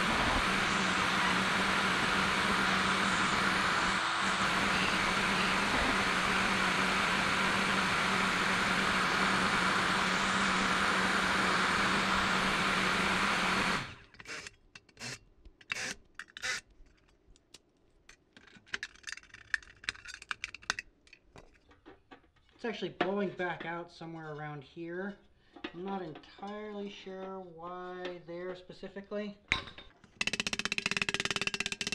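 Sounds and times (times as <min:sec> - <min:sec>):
heater fan blower running: 0:00.0 - 0:14.1.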